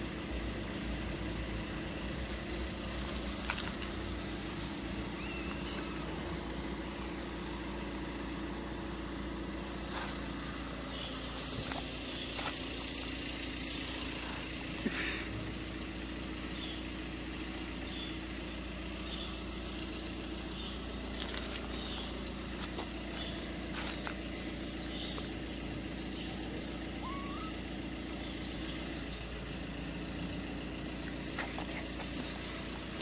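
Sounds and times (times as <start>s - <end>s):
low mechanical hum: 0.0s - 33.0s
rustle: 1.2s - 7.8s, 8.4s - 13.2s, 17.4s - 33.0s
faint short high chirps: 27.0s - 27.6s.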